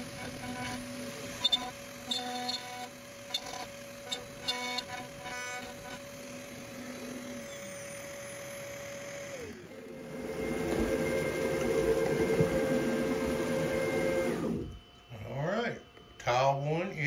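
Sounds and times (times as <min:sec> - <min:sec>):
stepper motor chirps: 0:00.0 - 0:10.5
router spindle whine: 0:00.0 - 0:17.0.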